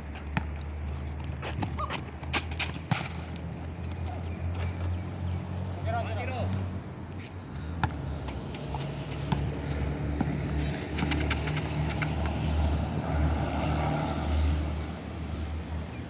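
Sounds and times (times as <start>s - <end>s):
basketball bouncing on asphalt: 0.0s - 5.2s, 7.6s - 13.5s.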